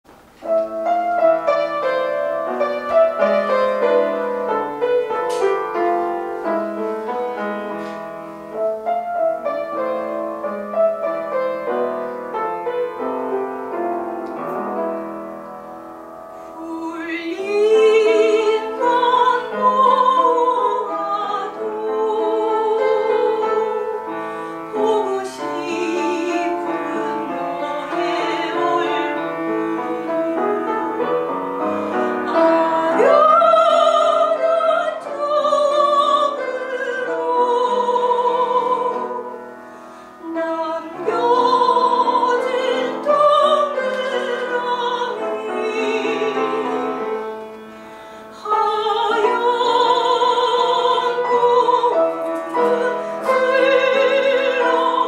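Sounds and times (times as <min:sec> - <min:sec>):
grand piano playing: 0:00.1 - 0:55.0
soprano singing with vibrato: 0:16.5 - 0:39.5, 0:40.2 - 0:55.0.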